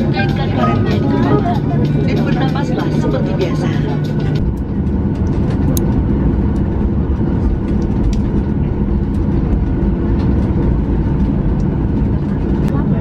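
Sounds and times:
low rumble of engines and wheels: 0.0s - 13.0s.

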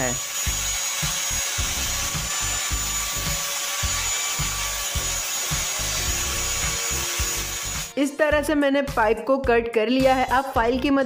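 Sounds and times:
grinder wheel grinding metal pipe: 0.0s - 8.0s.

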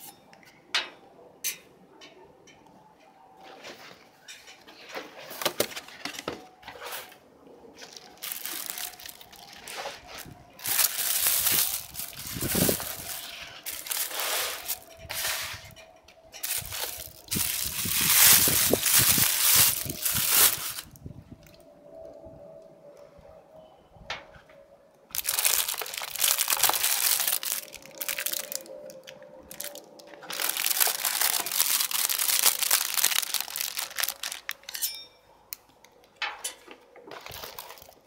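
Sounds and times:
tissue paper rustling and crinkling: 7.8s - 15.7s, 16.4s - 21.0s, 25.2s - 34.6s, 37.1s - 38.0s.

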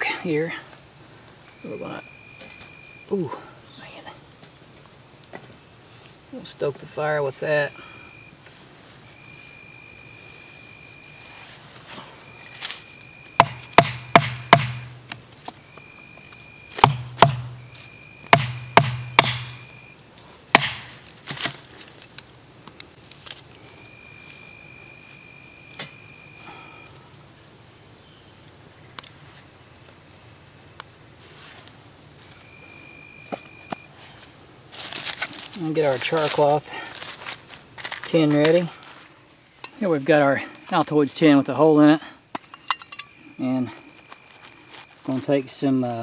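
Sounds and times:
insect buzzing: 0.0s - 38.0s
hatchet chopping wood: 13.4s - 15.2s, 16.7s - 17.7s, 18.3s - 19.7s, 20.5s - 21.6s.

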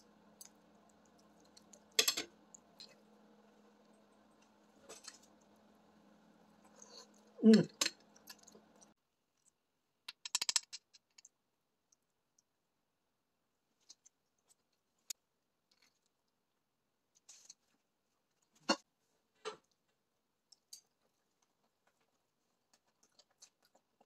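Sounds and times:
low steady hum: 0.0s - 9.5s.

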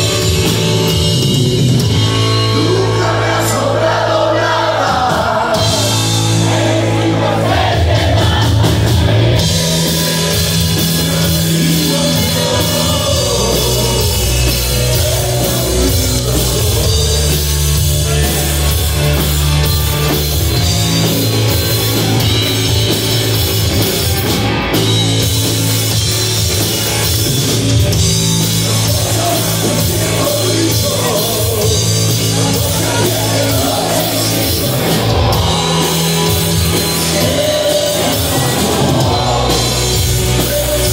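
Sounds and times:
bass guitar: 0.0s - 40.9s
drum kit: 0.0s - 40.9s
electric guitar: 0.0s - 40.9s
person singing: 7.2s - 18.9s, 28.6s - 40.9s.

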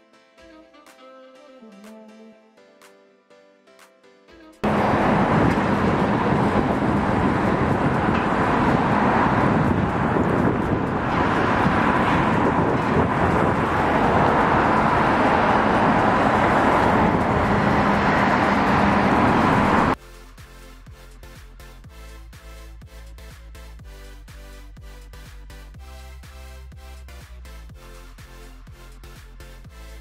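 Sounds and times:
low hum: 4.6s - 20.0s
road traffic rushing past: 4.6s - 20.0s.

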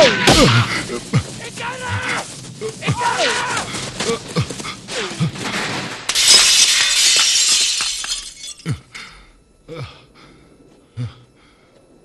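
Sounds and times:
breaking glass tinkling: 6.1s - 8.6s
window glass shattering: 6.1s - 8.6s.

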